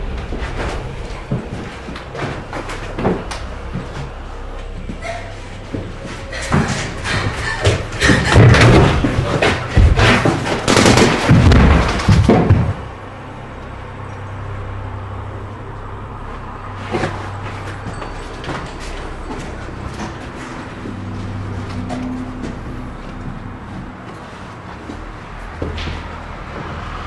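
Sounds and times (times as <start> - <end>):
chaotic bangs and thuds: 0.0 - 13.5
steady low hum: 0.0 - 27.0
gunshots: 10.0 - 12.2.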